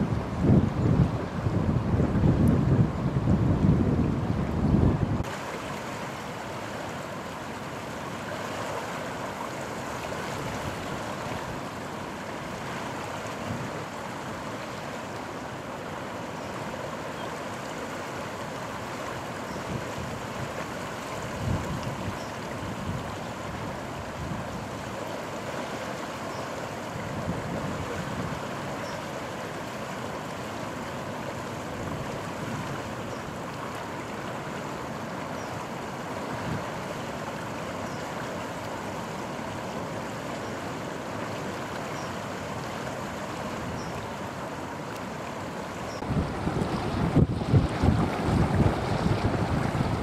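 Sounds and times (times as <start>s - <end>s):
wind buffeting microphone: 0.0s - 5.3s, 46.0s - 50.0s
river water rushing: 0.0s - 50.0s.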